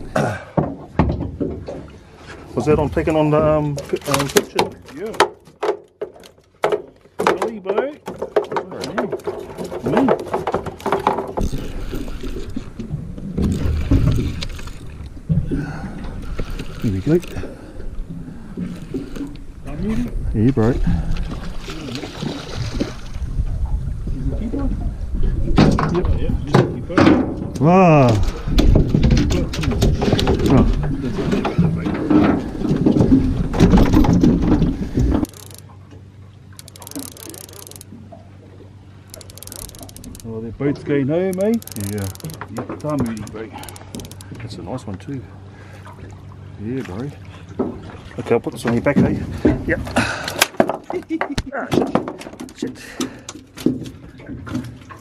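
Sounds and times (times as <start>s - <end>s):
wind and water rumble: 0.0s - 55.0s
microphone rumbling and rustling: 9.4s - 35.3s
fishing gear knocking: 33.6s - 35.7s, 36.6s - 37.9s, 39.1s - 40.3s, 41.2s - 44.4s.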